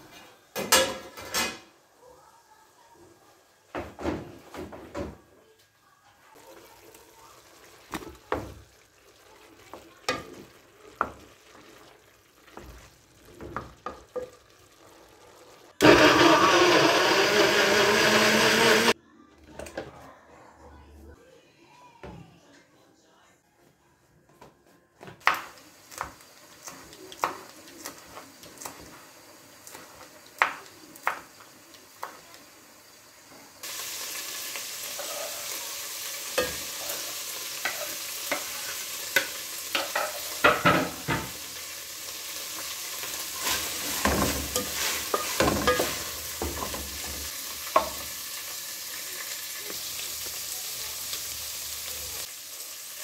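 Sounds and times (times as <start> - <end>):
meat sizzling in a pot: 6.3 - 19.0, 25.2 - 53.0
wooden spoon scraping a pot: 15.8 - 19.0, 43.0 - 46.8.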